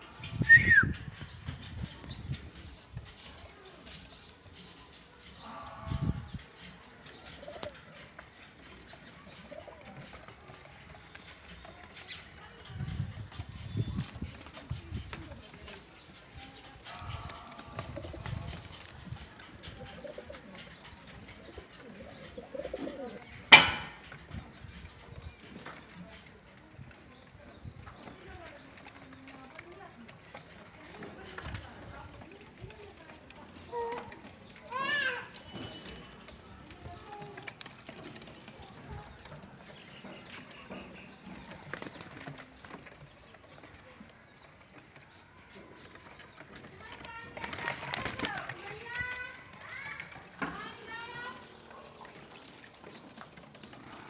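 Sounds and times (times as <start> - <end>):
pigeons cooing: 5.8 - 12.3, 16.7 - 25.9
pigeon cooing: 17.7 - 23.7
sharp bang: 23.5 - 24.0
pigeon wings fluttering: 36.8 - 54.0.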